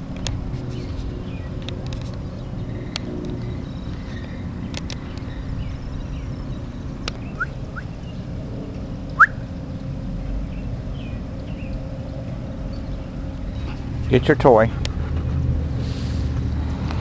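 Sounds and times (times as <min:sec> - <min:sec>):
steady low rumble: 0:00.0 - 0:16.4
bird chirps: 0:05.0 - 0:08.3, 0:09.1 - 0:09.5.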